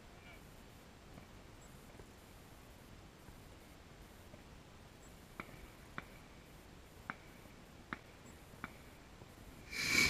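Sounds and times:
fuse hissing: 0:09.7 - 0:10.0.

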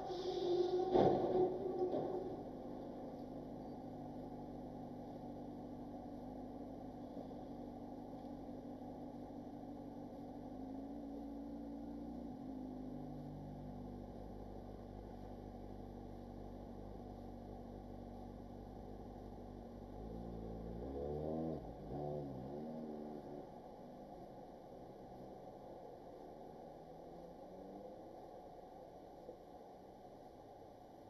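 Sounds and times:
car engine idling: 0:00.0 - 0:20.8.

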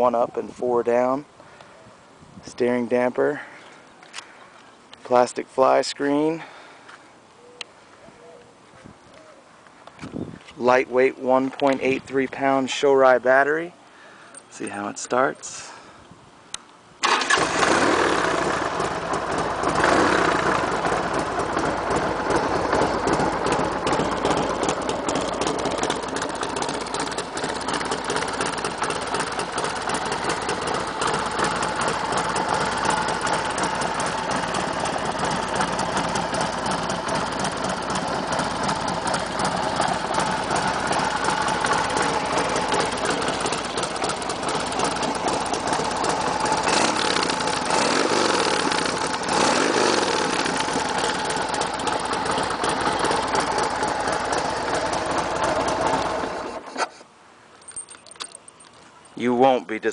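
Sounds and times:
motorcycle engine starting and idling: 0:17.0 - 0:57.0.

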